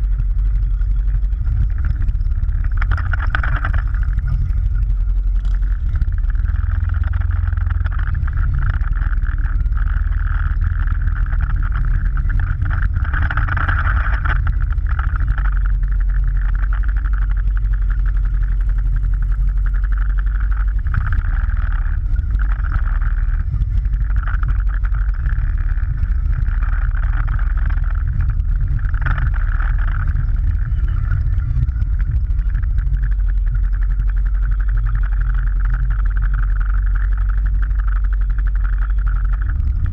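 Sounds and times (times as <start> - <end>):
motorcycle engine rumble: 0.0 - 39.9
road wind: 0.0 - 39.9.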